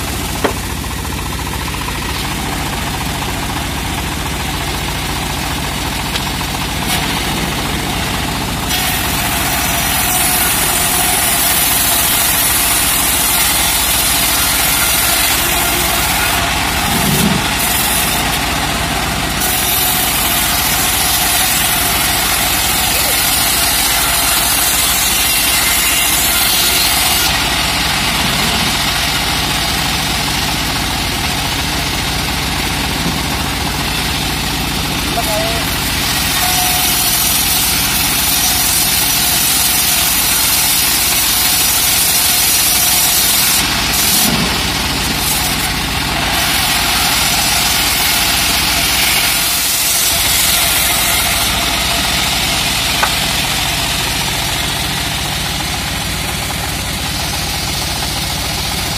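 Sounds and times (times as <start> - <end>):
band saw machine drone: 0.0 - 58.9
saw blade hissing through wood: 8.6 - 18.8, 19.4 - 27.4, 36.0 - 54.6.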